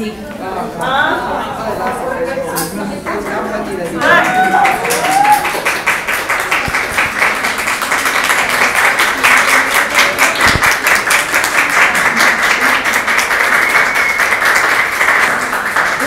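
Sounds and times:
crowd applauding: 4.0 - 16.0.

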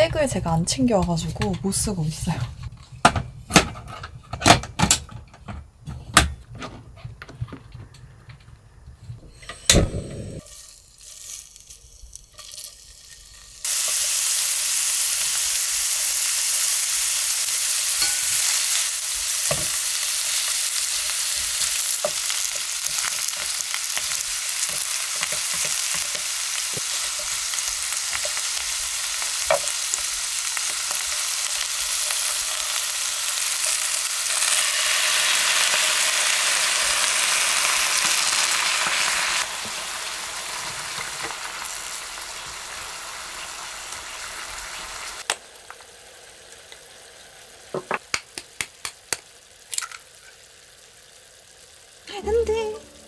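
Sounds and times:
meat sizzling in a pan: 9.9 - 53.0
tongs tapping a pan: 18.0 - 18.6, 19.4 - 28.6, 29.2 - 31.3.

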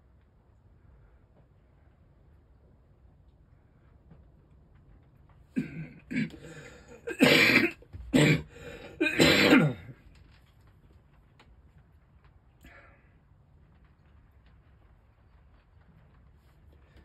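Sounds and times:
person clearing throat: 5.6 - 10.0
person coughing: 5.6 - 10.0.

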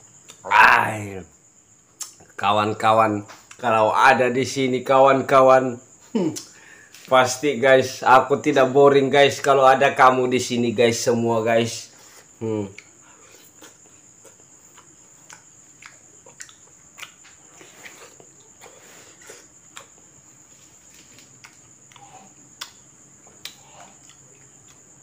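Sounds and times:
high-pitched insect trill: 0.0 - 25.0
wet chewing mouth clicks: 13.5 - 18.3, 21.3 - 24.8.

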